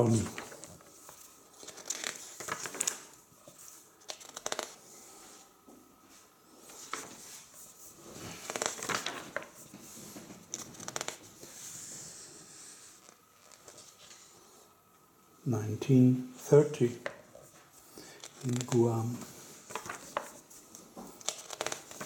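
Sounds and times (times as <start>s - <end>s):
book pages turning: 0.0s - 4.8s, 6.6s - 14.4s, 16.8s - 22.0s.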